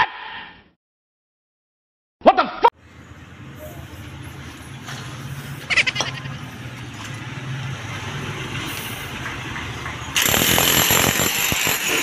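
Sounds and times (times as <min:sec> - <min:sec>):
electric demolition hammer rattling: 0:09.2 - 0:12.0.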